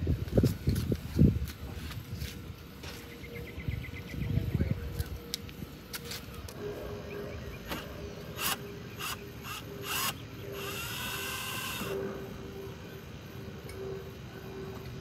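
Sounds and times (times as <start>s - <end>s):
drill motor whining: 7.6s - 12.1s.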